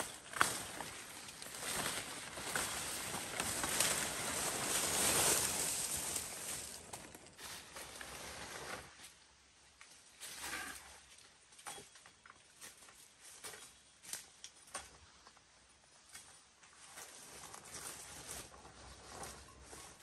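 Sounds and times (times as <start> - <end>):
leaves and undergrowth rustling: 0.0 - 9.2, 15.9 - 20.0.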